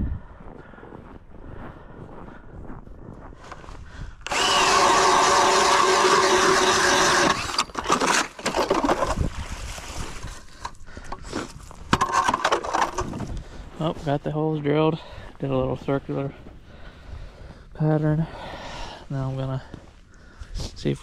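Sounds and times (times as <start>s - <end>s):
cordless drill motor running: 4.2s - 9.2s
auger grinding through ice: 4.2s - 13.4s.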